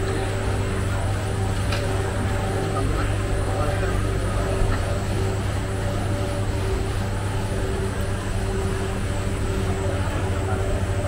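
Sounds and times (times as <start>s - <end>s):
faint steady tones: 0.0s - 11.0s
low mechanical drone: 0.0s - 11.0s.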